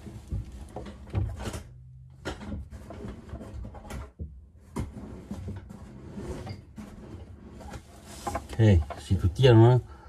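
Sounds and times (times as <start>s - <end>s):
tools knocking and rattling: 0.0s - 5.6s, 7.7s - 9.3s.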